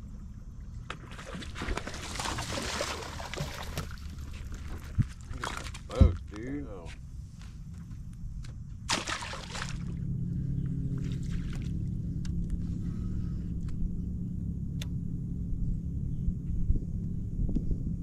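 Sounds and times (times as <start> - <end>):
water splash: 1.1 - 6.0, 8.9 - 10.0
electric trolling motor hum: 9.4 - 18.0.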